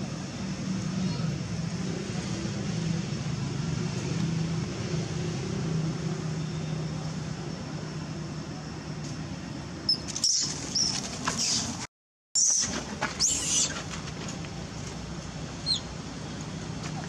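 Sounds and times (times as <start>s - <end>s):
low engine-like hum: 0.0s - 17.0s
baby monkey squealing: 9.9s - 11.7s, 12.4s - 13.8s, 15.6s - 15.9s.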